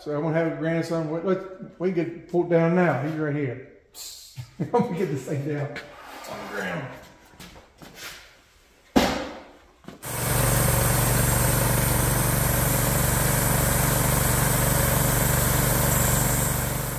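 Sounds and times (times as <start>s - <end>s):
air compressor engine running: 10.0s - 16.9s.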